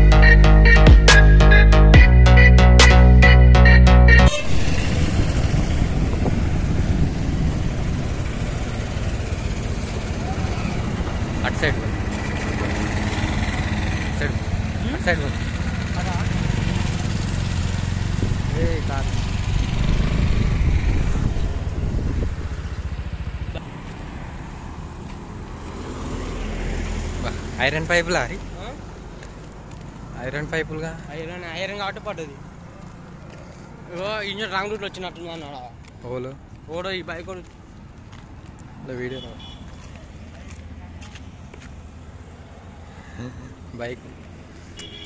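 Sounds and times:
electronic intro music: 0.0s - 6.2s
highway traffic rumble: 4.2s - 45.0s
wind rush: 4.4s - 8.7s, 18.1s - 18.6s, 19.3s - 23.0s.

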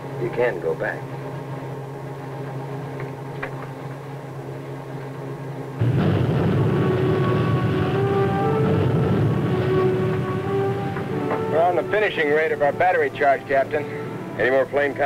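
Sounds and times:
low interior hum: 0.0s - 15.0s
rush of sea and engine: 5.8s - 15.0s.

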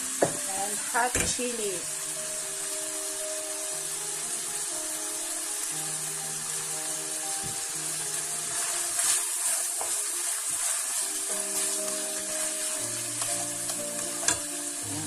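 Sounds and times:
background music: 0.0s - 15.0s
sausage meat sizzling in pan: 0.0s - 15.0s
spatula scraping pan: 8.5s - 14.5s
spatula knocking on pan: 9.8s - 10.0s.

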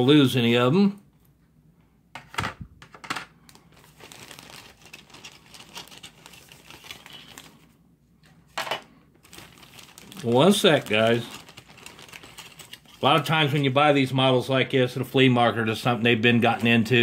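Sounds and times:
plastic bag crinkling: 3.4s - 7.8s, 8.6s - 14.2s
plastic parts clacking: 10.2s - 13.2s.

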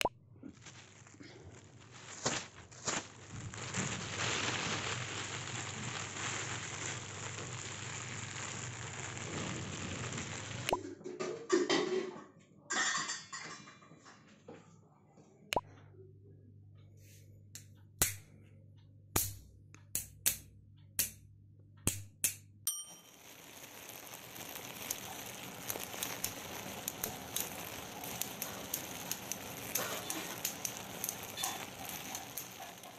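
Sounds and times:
crackling hiss: 0.0s - 10.8s, 23.0s - 32.9s
crinkling: 0.0s - 10.8s, 23.0s - 32.9s
sharp clicks and taps: 19.2s - 22.6s.

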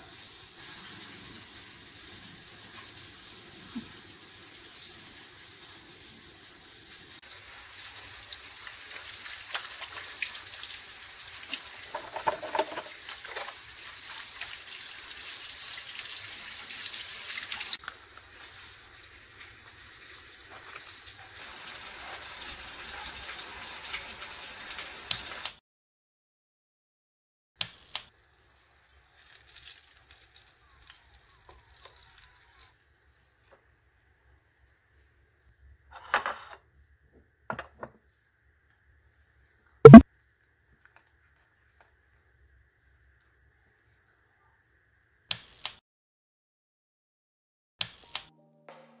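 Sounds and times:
tap running into sink: 11.9s - 13.5s.

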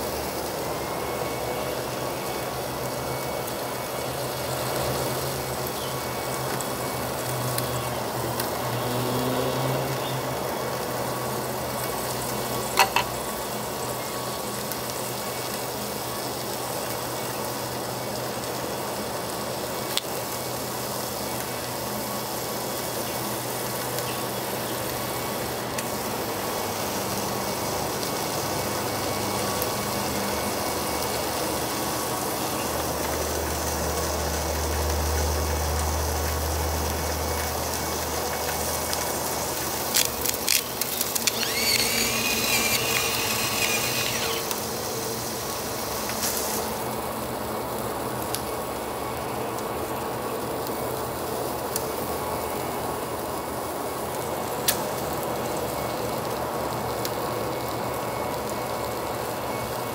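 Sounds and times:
meat sizzling on a grill: 0.0s - 59.9s.

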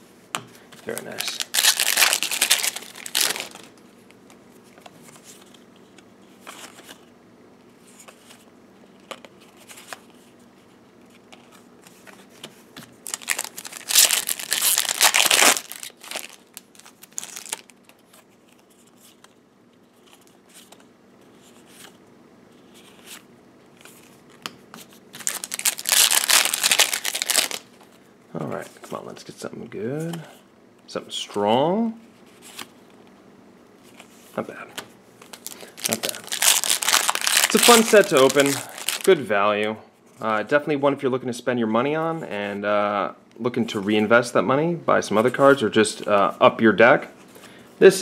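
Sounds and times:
foil wrappers crinkling and tearing: 0.8s - 3.7s, 13.0s - 18.0s, 25.2s - 27.7s, 35.2s - 39.2s.

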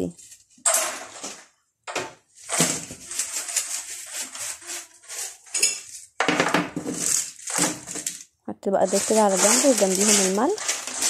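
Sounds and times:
plastic containers clattering on shelf: 6.2s - 8.2s.

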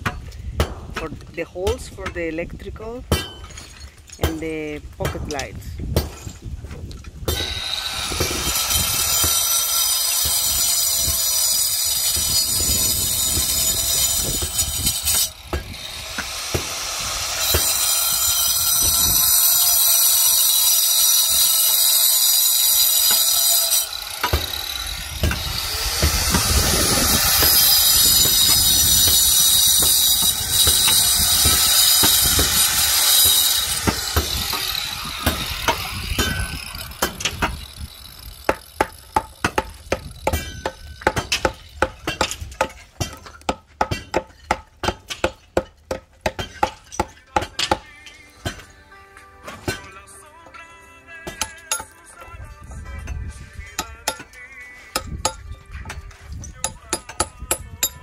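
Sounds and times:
hammer striking concrete block: 0.0s - 1.1s, 3.1s - 4.4s, 7.3s - 21.0s, 22.9s - 37.7s, 38.5s - 48.7s, 51.2s - 52.2s, 53.0s - 56.0s, 56.6s - 58.0s
angle grinder cutting concrete: 7.4s - 39.4s.

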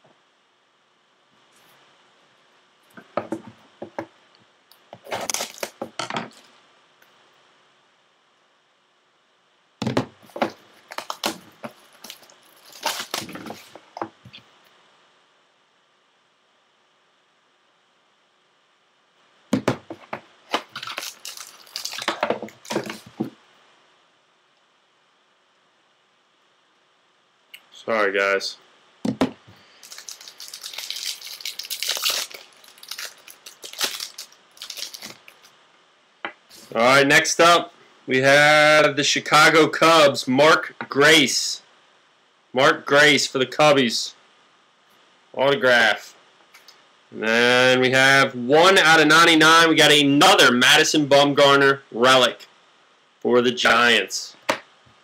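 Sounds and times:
foil pack tearing: 5.0s - 5.8s, 10.4s - 13.7s, 20.5s - 23.0s, 29.8s - 35.4s.

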